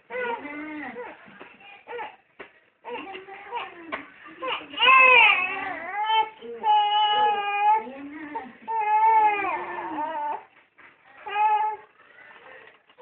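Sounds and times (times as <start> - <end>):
baby crying: 4.4 - 7.9, 8.7 - 10.5.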